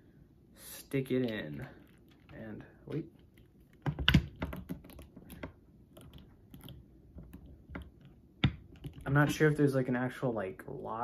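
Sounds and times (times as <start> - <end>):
hard plastic clicking and tapping: 3.8 - 9.4.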